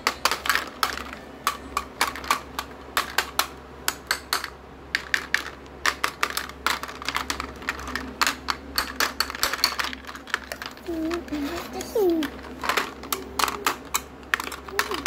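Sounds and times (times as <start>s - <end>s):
plastic toy knives clacking: 0.0s - 15.0s.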